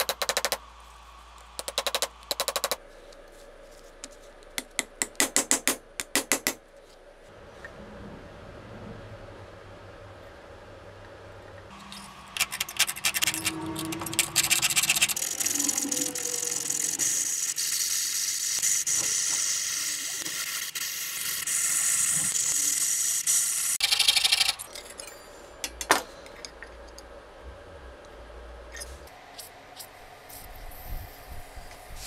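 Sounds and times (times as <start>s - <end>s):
sharp clicks: 1.6s - 2.8s.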